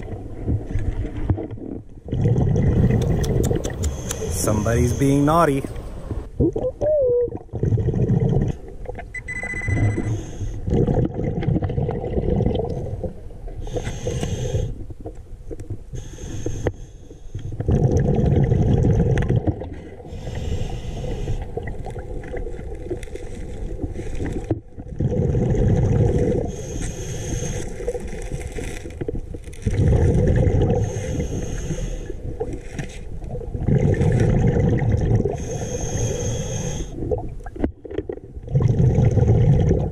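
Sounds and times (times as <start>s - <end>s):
exhaled bubbles rumbling underwater: 0.0s - 4.9s, 5.6s - 16.6s, 17.4s - 39.9s
hissing inhalations: 2.8s - 5.8s, 26.5s - 27.8s, 30.8s - 32.2s, 35.4s - 37.0s.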